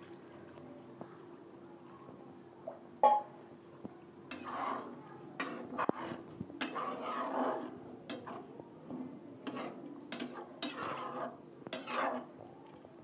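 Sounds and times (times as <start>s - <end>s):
wet scraping and sloshing: 4.3s - 8.5s.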